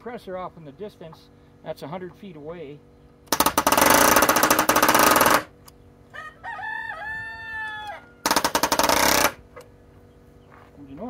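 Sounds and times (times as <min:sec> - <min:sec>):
distant air compressor hum: 0:00.0 - 0:11.0
pneumatic nailer hammering nails: 0:03.3 - 0:05.7, 0:08.2 - 0:09.6
rooster crowing: 0:06.1 - 0:08.6.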